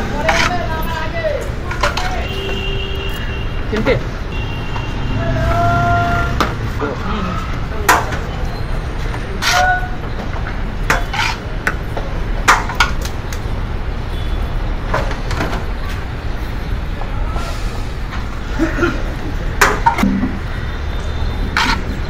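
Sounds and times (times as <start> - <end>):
steel plate scraping a metal pot: 11.0 - 11.4, 21.5 - 22.0.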